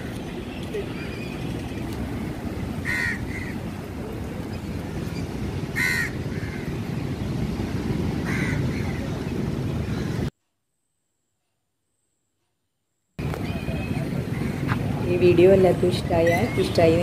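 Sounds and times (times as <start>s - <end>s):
wind: 0.0s - 17.0s
crows cawing: 2.8s - 3.6s, 5.8s - 6.7s, 8.2s - 8.9s.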